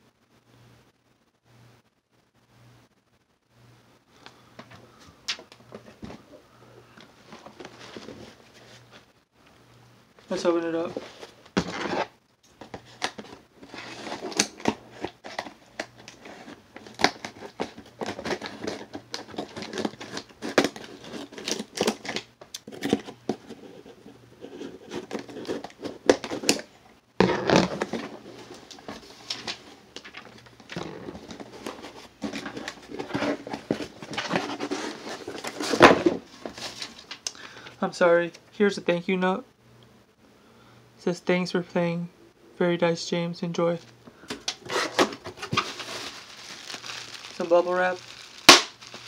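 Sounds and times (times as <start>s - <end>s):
cardboard rustling and scraping: 7.2s - 9.1s, 10.3s - 37.2s, 44.3s - 49.0s.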